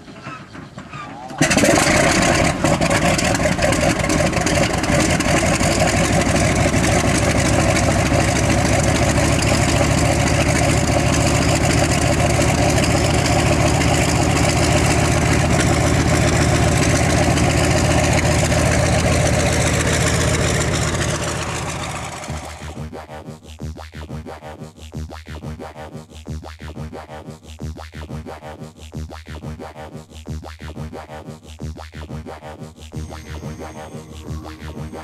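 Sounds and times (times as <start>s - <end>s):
engine-like drone with hiss: 1.6s - 22.9s, 32.4s - 35.0s.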